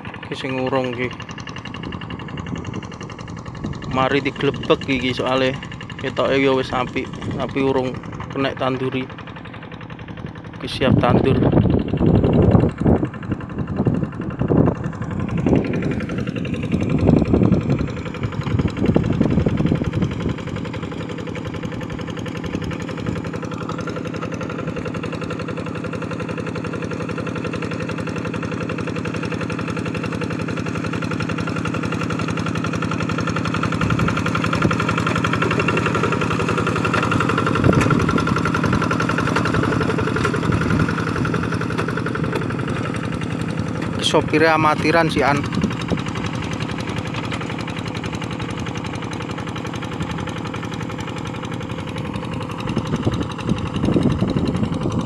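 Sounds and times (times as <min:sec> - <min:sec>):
diesel tractor engine running: 0:00.0 - 0:55.0.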